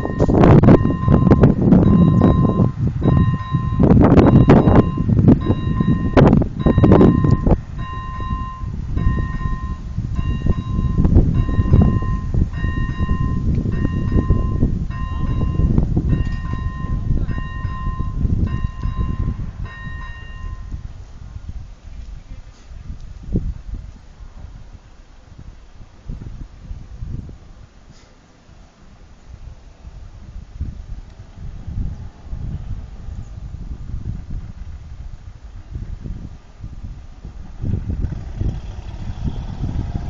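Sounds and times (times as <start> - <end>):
level crossing warning bell: 0.0 - 21.0
low rumbling with knocks: 37.3 - 40.0.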